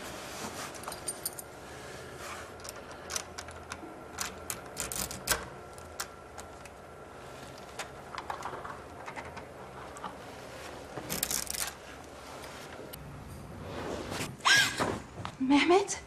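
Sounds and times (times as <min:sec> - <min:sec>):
lock picking clicks and scrapes: 0:02.6 - 0:06.1.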